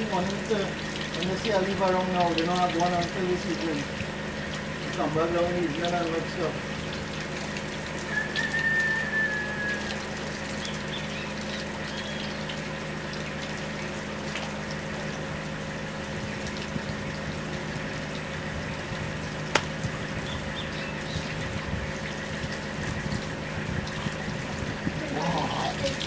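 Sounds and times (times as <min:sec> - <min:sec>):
tap water splashing into sink: 0:00.0 - 0:15.2, 0:19.4 - 0:20.2.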